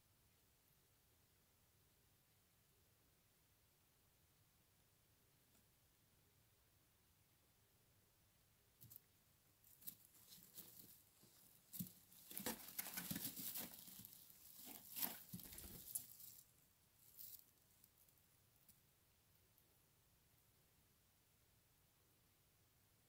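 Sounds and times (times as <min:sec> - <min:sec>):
birds rustling in straw: 0:09.6 - 0:18.0.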